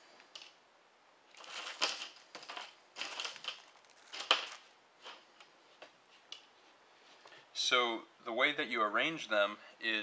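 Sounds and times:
gloved hands crinkling and rustling: 1.2 - 7.4.

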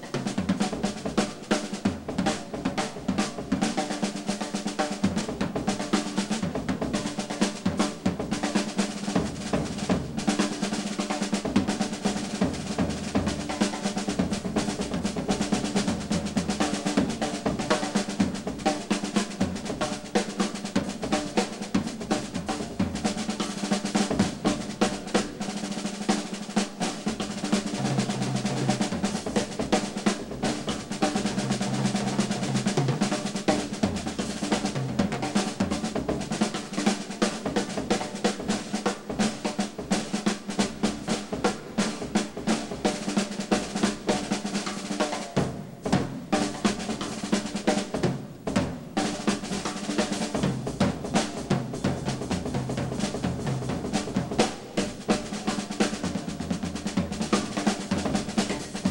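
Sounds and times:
fast snare drum rolls: 0.0 - 58.9
low drum notes: 0.0 - 58.9.

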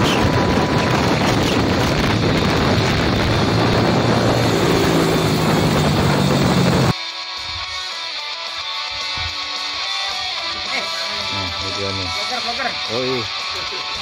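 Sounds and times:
motorcycle engine drone: 0.0 - 6.9
wind rushing over microphone: 0.0 - 6.9.

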